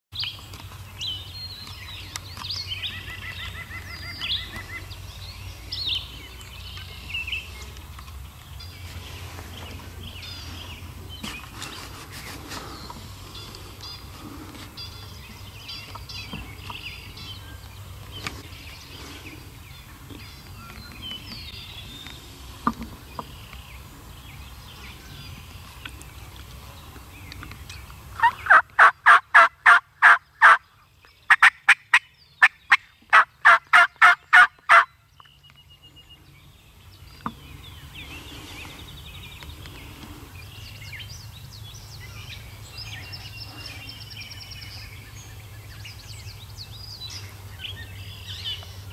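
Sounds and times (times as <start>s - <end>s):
songbird chirps: 0.1s - 48.9s
turkey calling: 28.2s - 30.6s, 31.3s - 34.9s.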